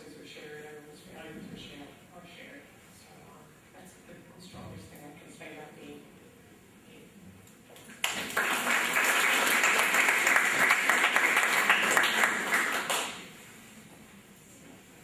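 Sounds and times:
audience applauding: 7.9s - 13.2s.

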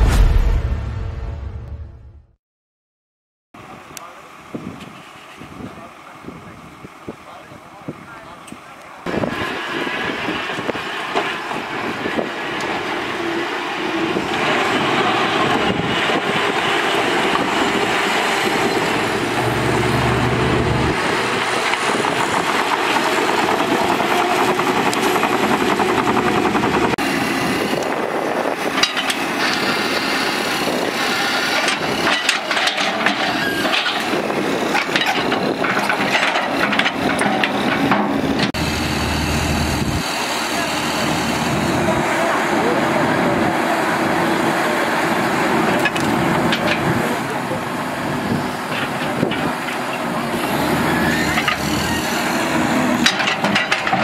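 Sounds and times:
heavy diesel machines running: 3.6s - 54.0s
knocks and clanks: 31.6s - 38.6s, 52.9s - 54.0s.

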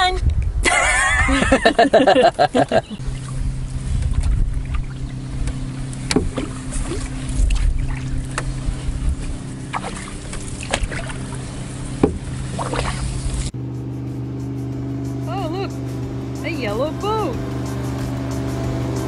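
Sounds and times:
wind on microphone: 0.0s - 13.6s
low hum: 0.3s - 19.0s
small water splashes and drips: 3.0s - 13.6s.

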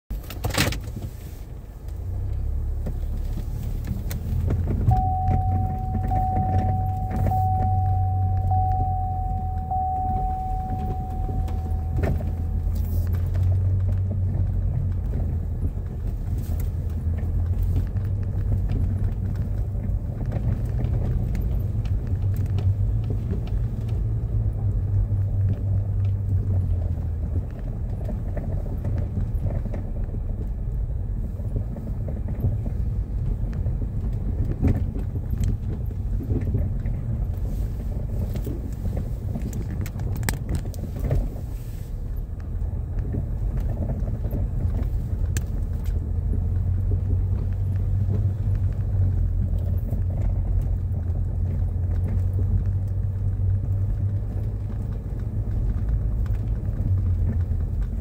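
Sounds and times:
engine and tyre rumble: 0.0s - 58.0s
pulsing electronic tone: 4.9s - 12.9s.

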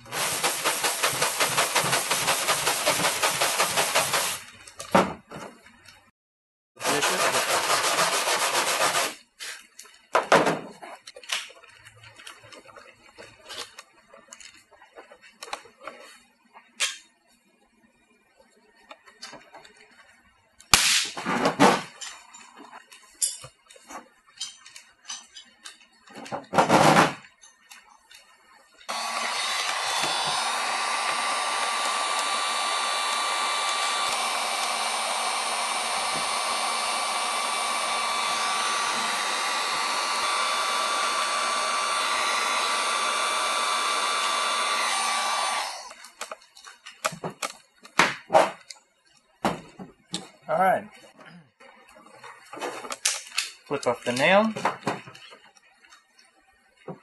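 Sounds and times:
heat gun whine: 0.0s - 4.5s, 28.9s - 46.4s.

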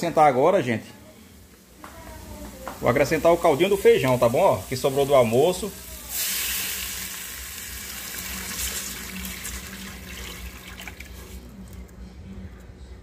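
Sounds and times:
broth pouring and splashing into pot: 3.9s - 11.5s.

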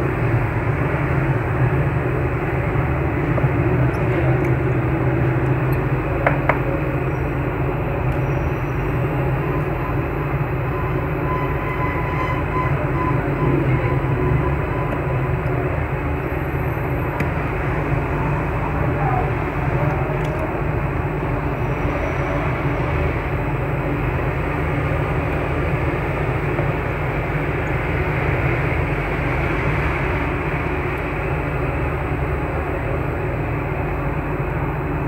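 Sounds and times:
steady background noise: 0.0s - 35.0s.

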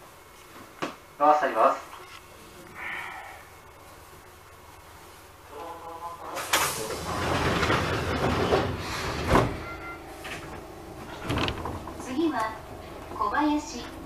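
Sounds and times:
hiss of air: 6.4s - 7.2s
doors shutting thump: 6.4s - 9.6s, 10.2s - 12.5s
train door click: 6.4s - 9.6s, 10.2s - 13.2s.

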